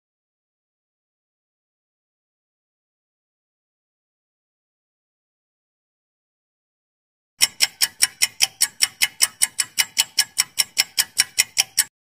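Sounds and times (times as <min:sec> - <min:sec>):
fast timer ticks: 0:07.4 - 0:12.0.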